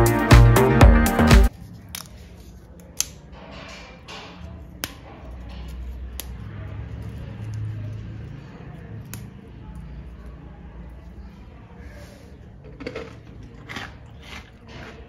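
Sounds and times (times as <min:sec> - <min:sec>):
background music: 0:00.0 - 0:01.5.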